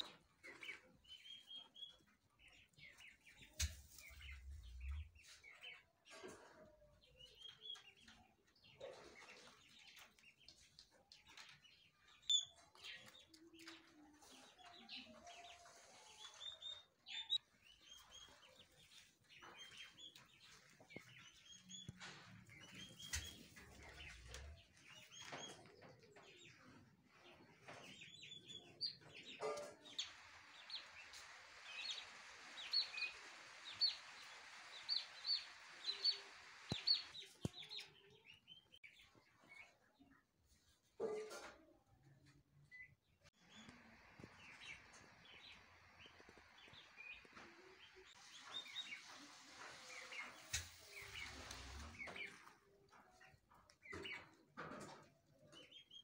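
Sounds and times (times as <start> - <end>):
poults peeping: 15.8 - 26.2, 27.6 - 37.9, 43.4 - 52.8.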